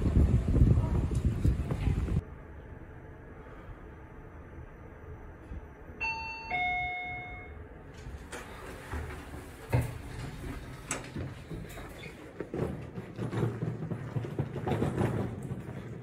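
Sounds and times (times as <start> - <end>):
lift arrival chime: 6.0 - 7.8
lift doors sliding open: 6.0 - 16.0.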